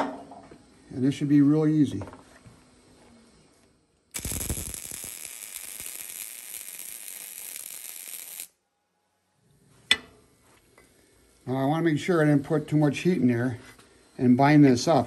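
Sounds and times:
welder arc crackling: 4.1s - 8.6s, 10.8s - 13.6s.

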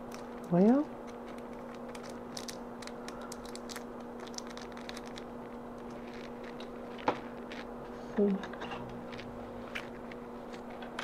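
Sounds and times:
plastic sleeve crinkling clicks: 0.0s - 7.7s
steady low hum: 0.0s - 11.0s.

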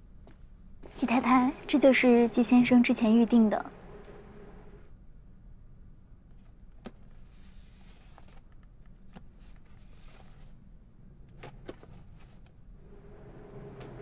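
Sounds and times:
low background hum: 0.0s - 14.0s
soft rustles of ribbon and box: 6.4s - 10.6s.

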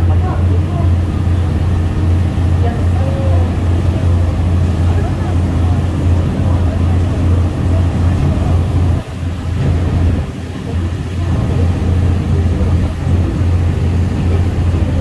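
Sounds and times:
boat engine droning: 0.0s - 15.0s
water rushing in wake: 0.0s - 15.0s.

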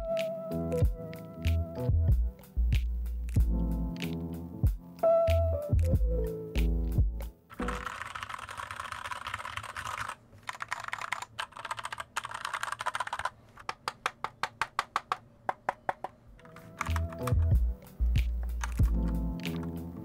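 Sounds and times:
background music: 0.0s - 8.1s, 16.3s - 20.0s
mechanical keyboard typing: 7.5s - 17.6s, 18.2s - 19.8s.

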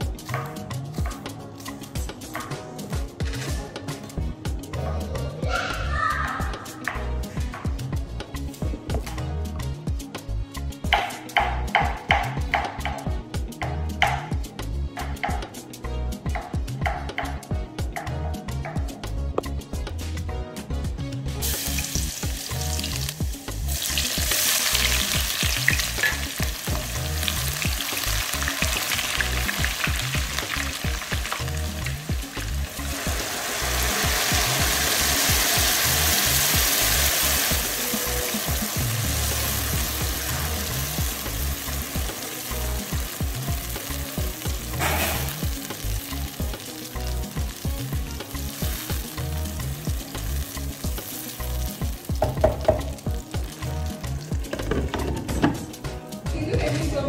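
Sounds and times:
food sizzling in hot oil: 21.3s - 55.0s.

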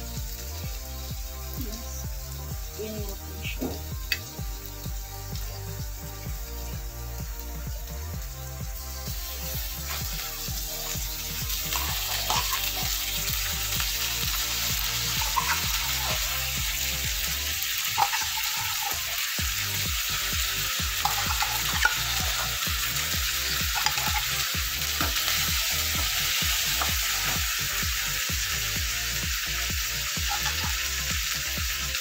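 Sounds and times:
food sizzling in oil: 0.0s - 32.0s.

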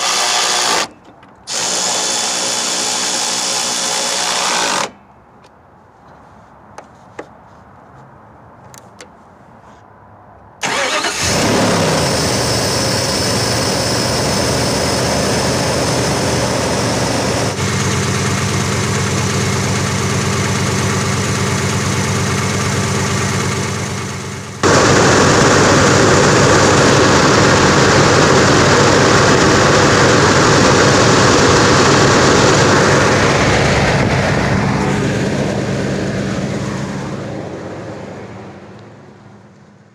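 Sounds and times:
car engine starting and idling: 10.6s - 39.9s.

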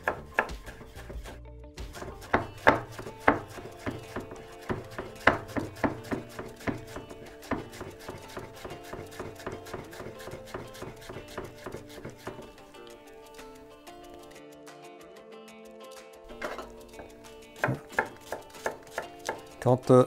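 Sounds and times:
knife tapping on wooden board: 0.0s - 1.2s, 1.9s - 12.6s, 16.3s - 19.5s.

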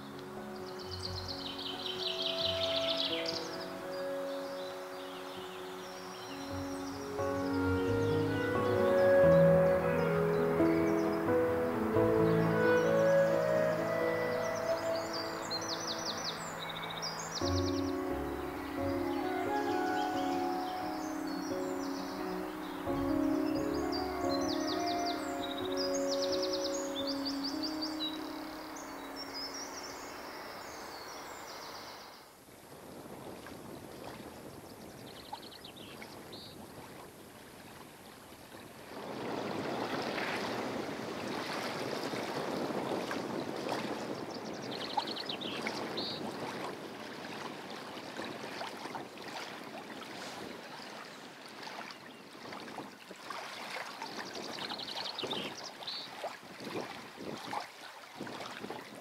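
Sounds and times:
lake water lapping: 33.0s - 59.0s.

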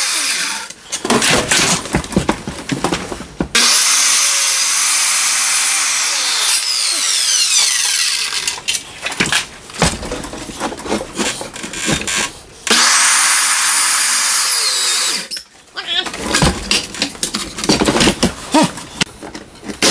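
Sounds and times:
circular saw cutting: 0.0s - 0.8s, 3.6s - 8.5s, 12.7s - 15.4s
knocks and scrapes: 0.7s - 3.6s, 8.3s - 12.6s, 15.4s - 19.9s.

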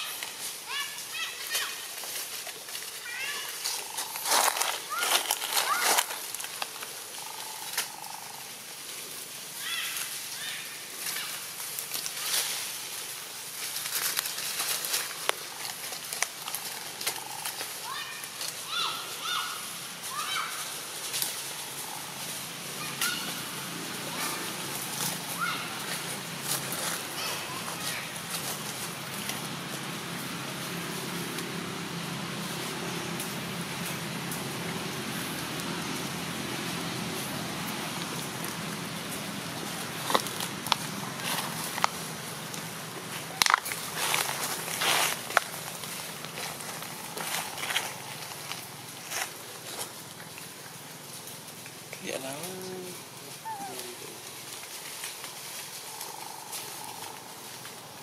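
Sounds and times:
steady background hiss: 0.0s - 58.0s
baby monkey squeaky calls: 53.4s - 53.8s.

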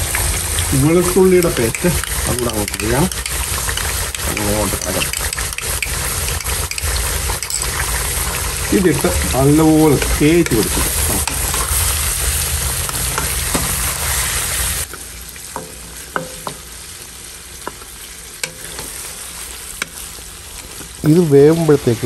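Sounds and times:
meat sizzling in a pan: 0.0s - 22.0s
spatula knocking against pan: 15.6s - 16.6s.

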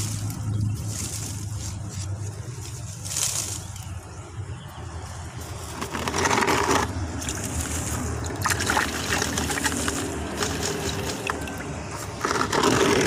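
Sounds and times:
water sloshing in a plastic tub: 5.8s - 13.0s.

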